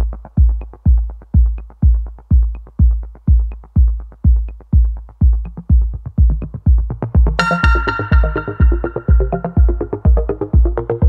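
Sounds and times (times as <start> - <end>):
kick drum beat: 0.0 - 11.0
sustained synth chord: 7.4 - 10.3
electronic music: 7.4 - 11.0.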